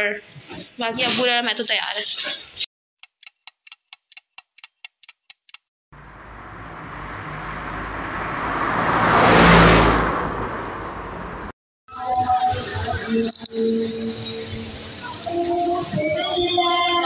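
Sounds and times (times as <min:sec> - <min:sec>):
even clicks: 0:03.0 - 0:05.6
road traffic noise: 0:03.0 - 0:11.6
vehicle passing whoosh: 0:06.0 - 0:11.5.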